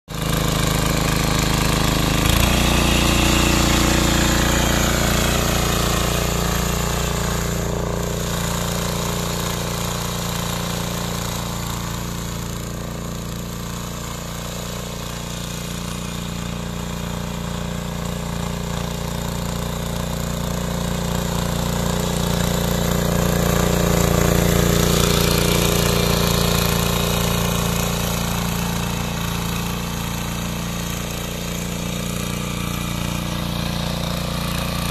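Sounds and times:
small tiller engine running: 0:00.0 - 0:34.9
tines churning soil: 0:00.1 - 0:34.9.

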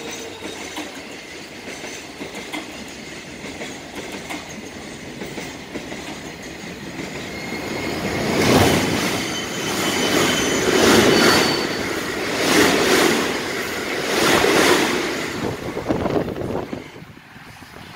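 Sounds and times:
train wheels rumbling over rail joints: 0:00.0 - 0:17.9
faint high wheel squeal: 0:07.0 - 0:12.2, 0:16.4 - 0:17.1.

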